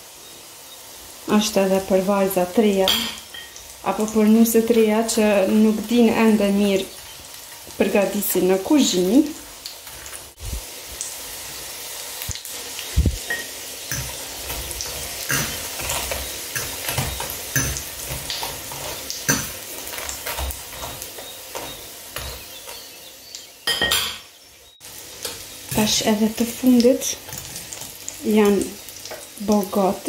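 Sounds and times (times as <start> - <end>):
patties sizzling in oil: 0.0 - 30.0
fork clattering: 13.3 - 22.9
fork scraping a pan: 13.3 - 22.9, 27.2 - 28.0.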